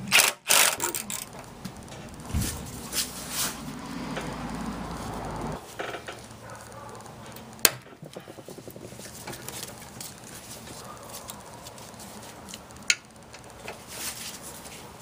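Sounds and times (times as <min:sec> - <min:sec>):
ratchet clicks: 0:00.0 - 0:02.2.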